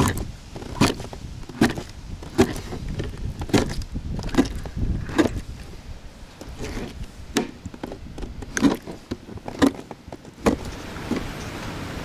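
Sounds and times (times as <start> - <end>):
hollow knocks against a boat: 0.0 - 5.4.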